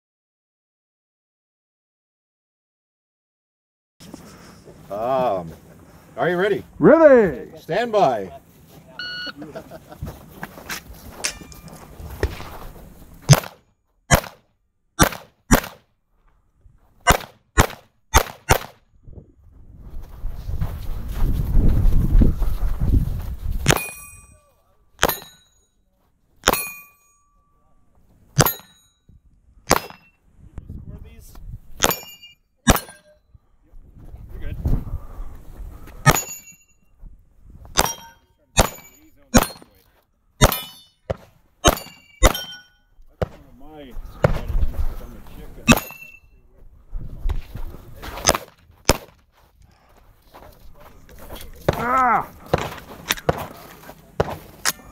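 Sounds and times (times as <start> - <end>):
short metallic ring: 11.2 - 11.9, 23.7 - 25.8, 26.4 - 27.8, 28.4 - 29.1, 31.8 - 33.3, 36.0 - 36.9, 37.8 - 39.8, 40.4 - 43.0, 45.7 - 46.4
pistol gunshots: 13.3 - 14.4, 15.0 - 15.8, 17.0 - 18.8, 29.7 - 30.1, 40.4 - 40.8, 41.6 - 42.6, 45.7 - 46.0, 48.2 - 49.2.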